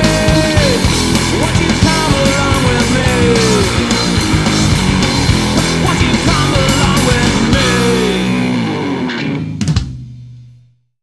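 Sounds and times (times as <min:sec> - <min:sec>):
drum hits: 0:00.0 - 0:08.6
sliding guitar lines: 0:00.0 - 0:09.7
rock band playing: 0:00.0 - 0:10.6.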